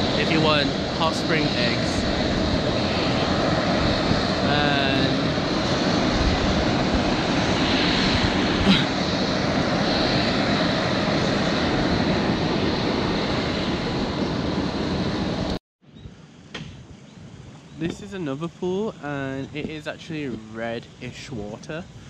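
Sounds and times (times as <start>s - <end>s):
steam venting rushing noise: 0.0s - 15.6s, 17.7s - 22.0s
single tap: 16.5s - 16.8s.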